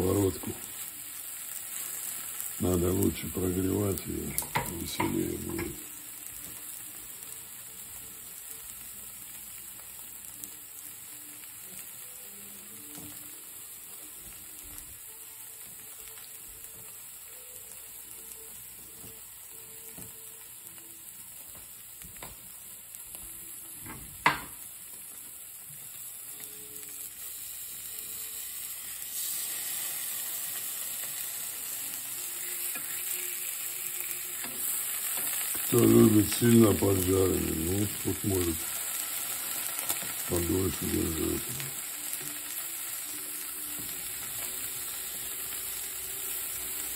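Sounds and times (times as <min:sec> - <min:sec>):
person speaking: 0:00.0 - 0:00.6, 0:02.6 - 0:05.8, 0:35.7 - 0:38.7, 0:40.3 - 0:41.8
cheese sizzling in frying pan: 0:00.0 - 0:46.9.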